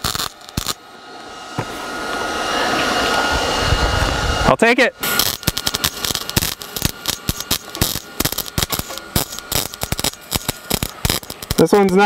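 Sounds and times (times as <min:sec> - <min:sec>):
welder arc crackling: 0:00.0 - 0:00.9, 0:04.0 - 0:12.0.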